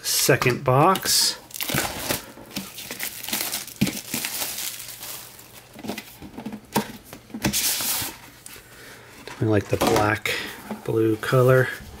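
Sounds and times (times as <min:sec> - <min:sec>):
shrink wrap crinkling: 0:01.4 - 0:06.2.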